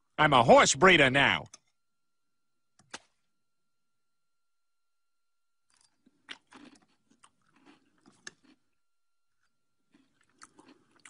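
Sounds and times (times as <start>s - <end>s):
crunchy cereal chewing: 5.7s - 11.0s.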